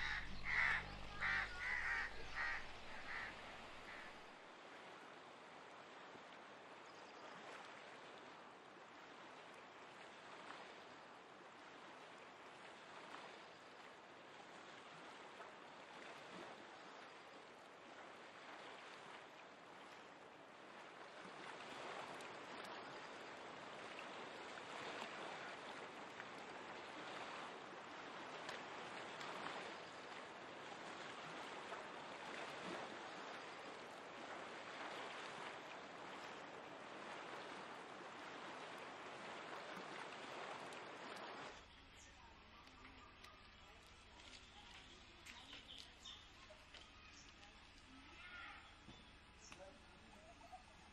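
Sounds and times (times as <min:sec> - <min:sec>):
river water rushing: 0:00.0 - 0:05.6, 0:23.2 - 0:41.6.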